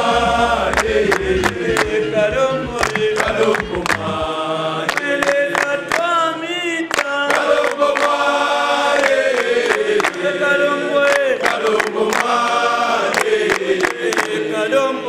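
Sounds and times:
deep bass voice: 0.0 - 4.3
men singing in chorus: 0.0 - 15.0
hand claps: 0.7 - 6.3, 6.9 - 8.3, 9.0 - 10.3, 11.0 - 14.5.

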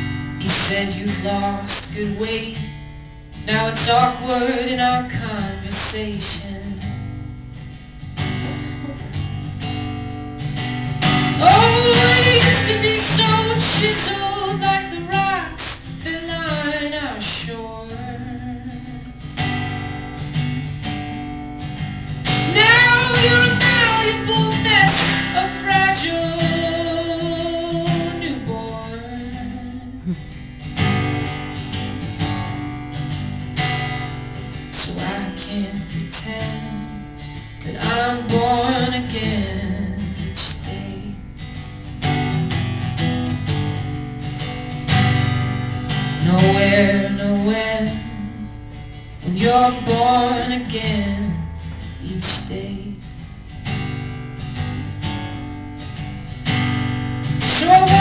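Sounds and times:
acoustic guitar: 0.0 - 58.0
man singing: 46.2 - 48.4, 57.4 - 58.0.

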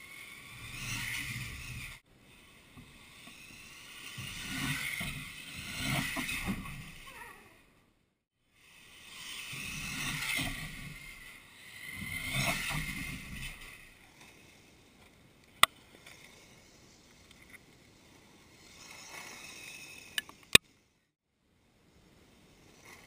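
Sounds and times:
radio-controlled car driving past: 0.0 - 7.2, 8.6 - 14.7, 18.6 - 20.5.

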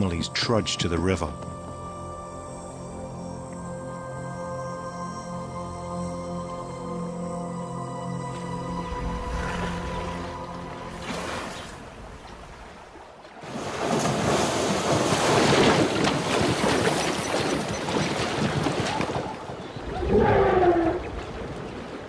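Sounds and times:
heavy splashing of water: 9.0 - 22.0.

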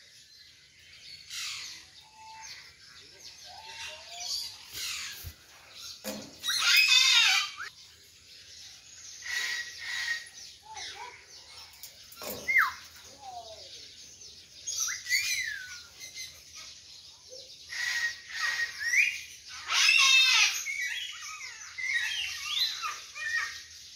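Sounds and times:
whistled bird chirps: 14.6 - 23.6.

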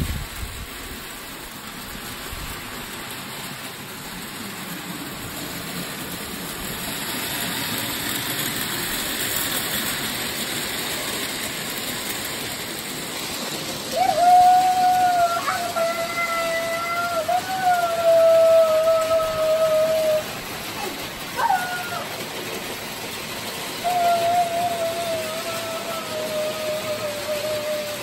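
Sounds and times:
model train wheels rattling on rails: 0.0 - 28.0.

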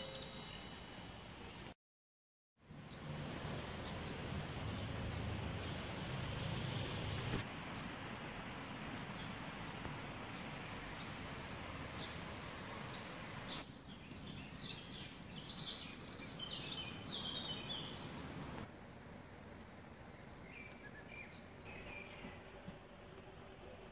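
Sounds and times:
steady outdoor background noise: 0.0 - 1.8, 2.6 - 23.9
small birds chirping: 8.9 - 18.7, 20.0 - 23.9.

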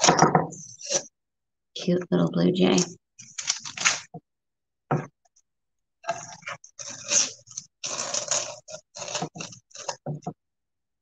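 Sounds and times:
tape crumpled in hand: 3.2 - 4.1
masking tape peeling: 6.8 - 10.0.

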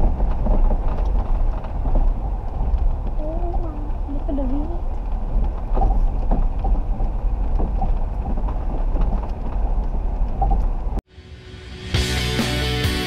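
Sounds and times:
knocks and rattles: 0.0 - 11.0
vehicle rumbling over ruts: 0.0 - 11.0.

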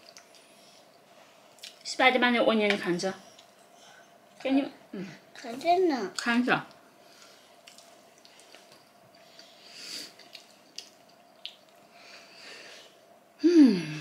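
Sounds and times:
faint steady hum: 0.0 - 14.0
person chewing: 7.1 - 11.9.

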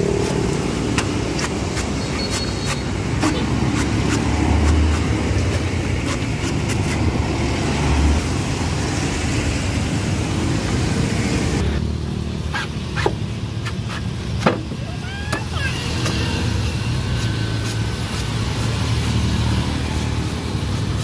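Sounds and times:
engines and road traffic: 0.0 - 21.0
cleaver chopping coconuts: 0.1 - 7.1.

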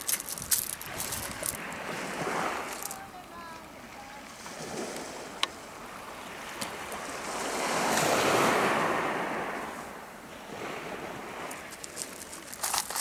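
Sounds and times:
wave washing onto shingle: 0.0 - 3.6, 10.6 - 13.0.

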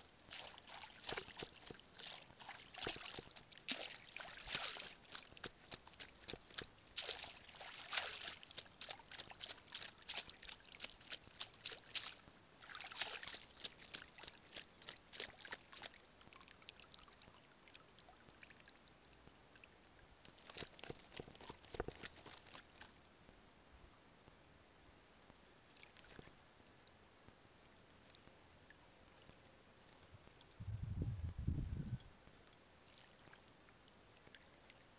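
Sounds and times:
water splashing from wading: 0.1 - 18.8.

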